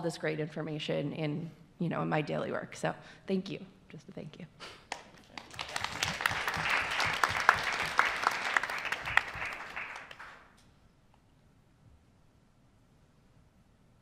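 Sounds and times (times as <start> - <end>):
audience applauding: 4.9 - 10.5.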